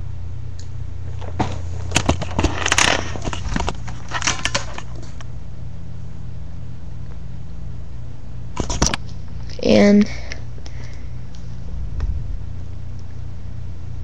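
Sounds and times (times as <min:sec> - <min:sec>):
low electrical hum: 0:00.0 - 0:14.0
camera handling knocks and rubbing: 0:01.2 - 0:05.0.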